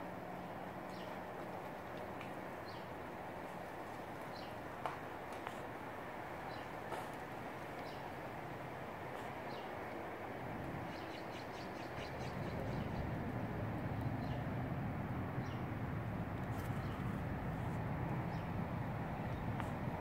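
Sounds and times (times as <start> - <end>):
birds chirping: 0.3 - 20.0.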